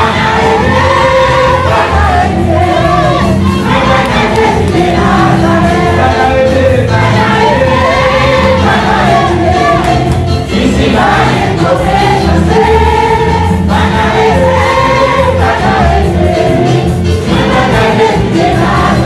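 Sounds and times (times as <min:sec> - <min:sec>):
gospel band playing: 0:00.0 - 0:19.0
man singing into microphone: 0:03.6 - 0:07.9.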